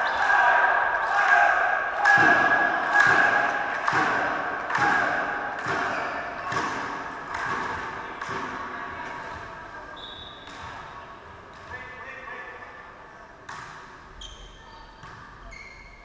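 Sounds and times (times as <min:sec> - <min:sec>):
sharp echoing thuds: 0:02.0 - 0:08.7.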